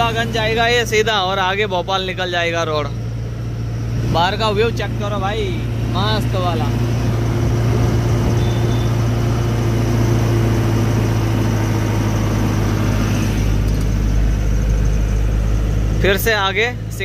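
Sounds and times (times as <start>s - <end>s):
diesel truck engine running: 0.0s - 17.0s
road noise: 0.0s - 17.0s.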